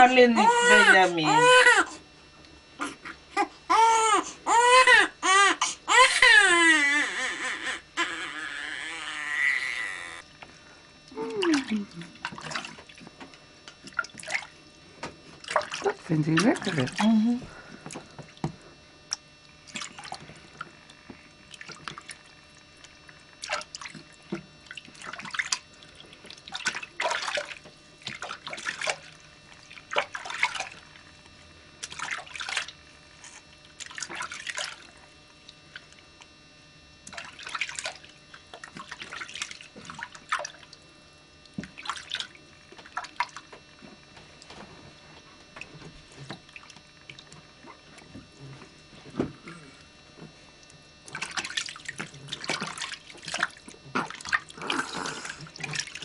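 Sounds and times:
bath water splashing: 11.1 - 31.2, 31.8 - 32.9, 33.6 - 36.3, 37.0 - 40.8, 41.4 - 43.5, 45.6 - 48.4, 50.6 - 56.0.

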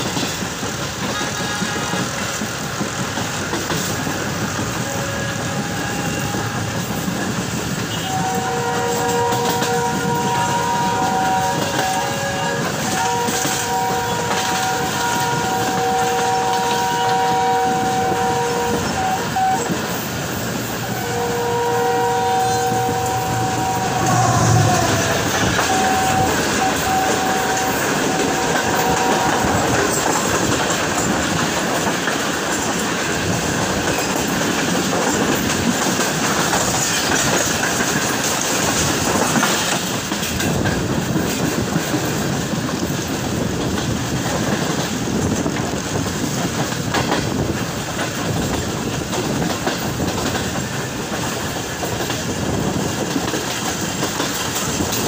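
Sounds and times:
train wheels clattering on rails: 0.0 - 55.0
train horn chord: 1.1 - 2.1, 4.8 - 7.1, 7.9 - 19.7, 21.0 - 29.9.

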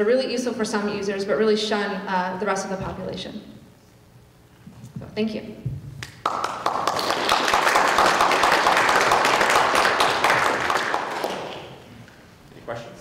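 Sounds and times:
audience applauding: 6.0 - 11.9.

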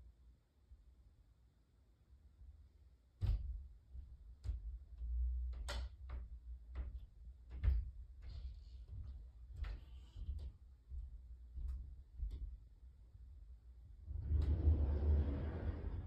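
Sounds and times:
muffled thuds through ceiling: 3.1 - 16.0.

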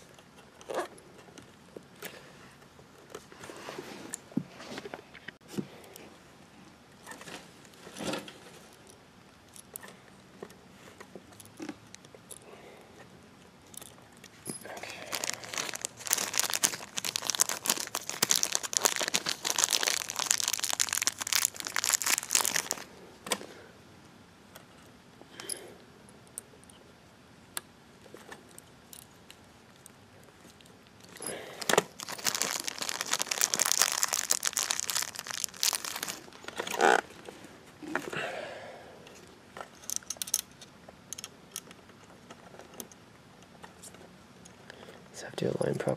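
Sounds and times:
crackling scraping handling noise: 7.0 - 23.6, 28.0 - 38.2.

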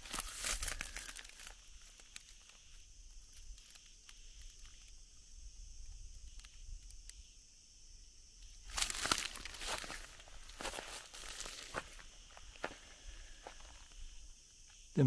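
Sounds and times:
footsteps crunching on dry leaves: 0.0 - 2.2, 8.6 - 14.0
high insect drone: 0.0 - 15.0.

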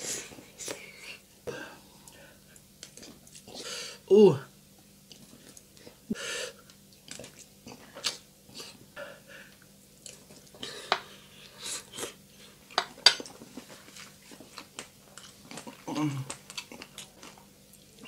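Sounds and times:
close chewing and mouth smacks: 2.0 - 3.6, 5.0 - 6.0, 6.6 - 8.3, 9.5 - 11.0, 11.9 - 18.0
breathing: 3.6 - 4.0, 8.6 - 9.6.

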